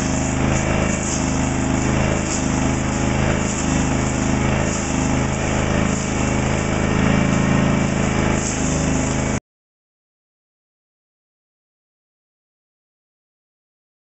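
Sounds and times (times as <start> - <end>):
cutter head hissing on log: 0.0 - 9.4
petrol engine running under load: 0.0 - 9.4.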